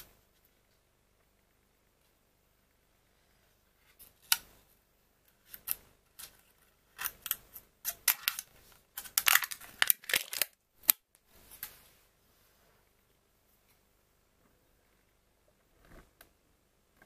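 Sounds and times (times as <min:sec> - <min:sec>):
foil lid crinkling as peeled: 0:08.0 - 0:10.6.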